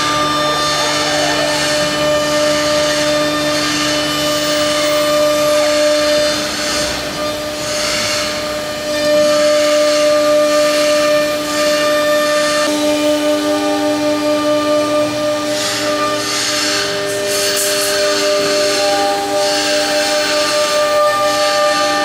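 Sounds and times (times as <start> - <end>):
machine whining: 0.0 - 22.0
low machine hum: 8.3 - 22.0.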